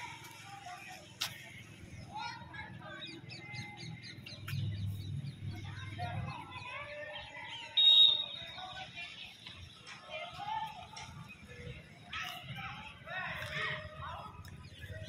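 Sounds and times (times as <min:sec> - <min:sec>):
birds chirping and calling: 0:00.0 - 0:15.0
high steady whistle-like tone: 0:07.7 - 0:08.6.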